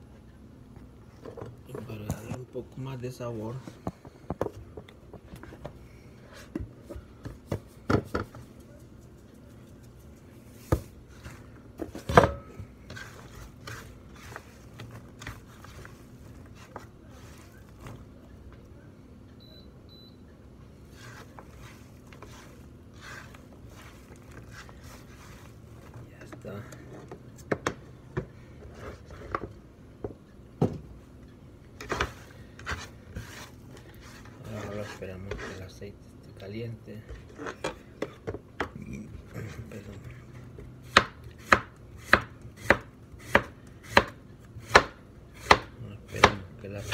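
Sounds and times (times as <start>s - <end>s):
banana slices rustling: 20.9s - 26.1s.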